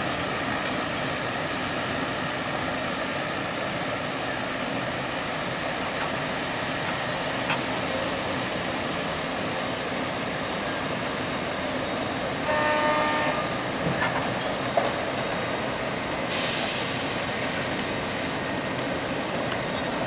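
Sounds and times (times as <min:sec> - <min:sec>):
horn sounding: 0:12.4 - 0:13.6.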